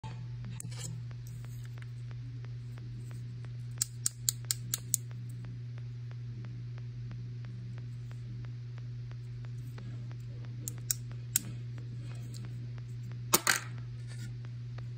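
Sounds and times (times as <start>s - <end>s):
steady low hum: 0.0s - 14.9s
sharp clicks of music player: 3.8s - 5.2s.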